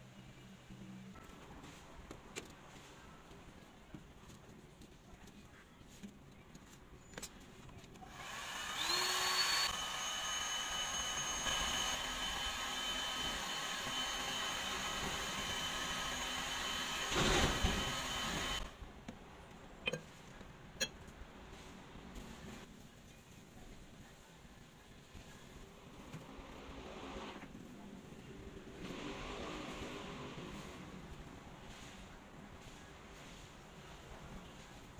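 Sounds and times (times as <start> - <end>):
heat gun fan whine: 8.1 - 18.7.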